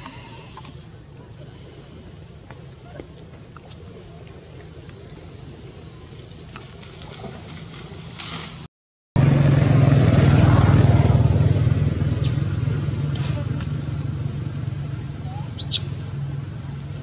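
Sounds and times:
vehicle engine humming: 9.2s - 17.0s.

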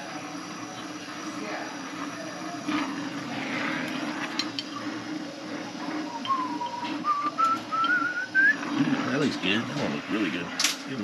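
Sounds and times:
torch flame hissing: 0.0s - 11.0s
thin rising whistle: 5.9s - 8.6s.

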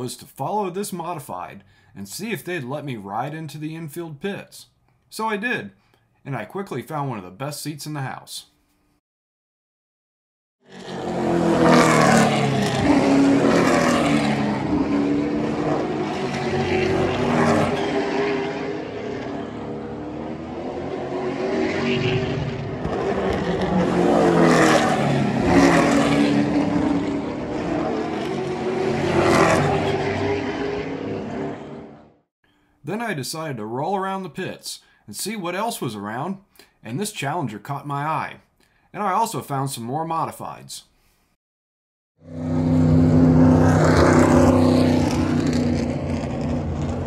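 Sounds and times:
stock car engines racing past: 10.7s - 32.2s, 42.2s - 47.0s.

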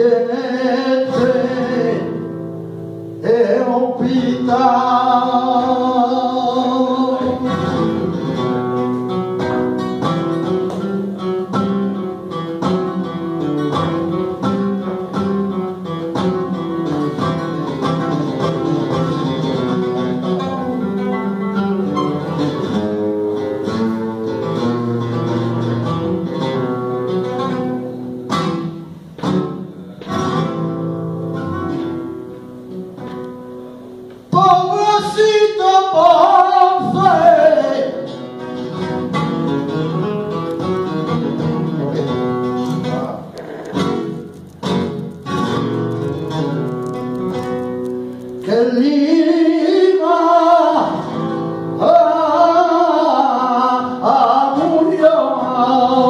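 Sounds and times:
man singing: 0.0s - 8.4s, 34.3s - 38.4s, 48.4s - 56.0s
acoustic guitar plucked runs: 0.0s - 56.0s.

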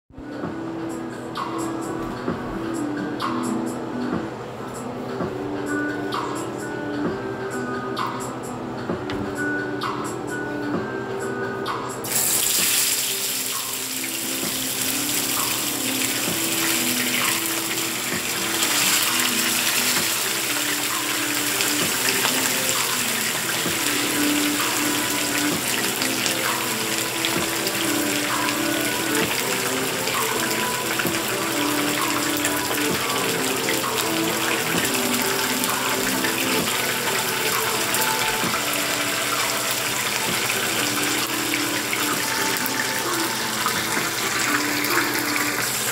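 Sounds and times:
fish sizzling in hot oil: 12.0s - 45.9s.

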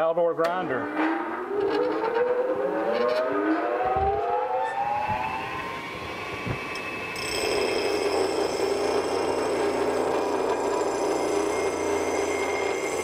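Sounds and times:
grinder motor whine: 1.5s - 13.0s
steel grinding: 6.8s - 13.0s.

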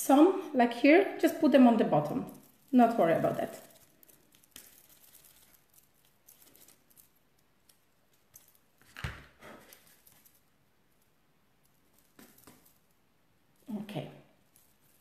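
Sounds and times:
hands rustling and tapping: 2.0s - 13.0s.

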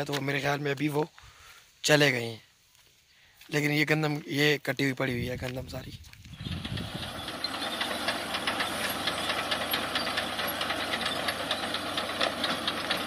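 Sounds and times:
tractor engine running: 6.2s - 13.0s
machine clatter: 6.4s - 13.0s.

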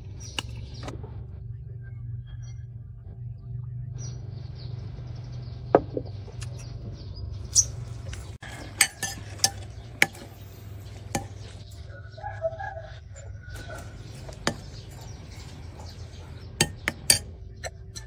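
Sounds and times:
steady low hum: 0.0s - 12.2s
chopsticks clinking on bowls: 8.1s - 11.8s.

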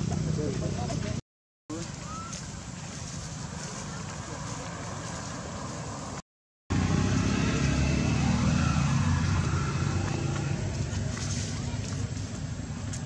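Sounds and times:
outdoor rumble: 2.6s - 13.0s.

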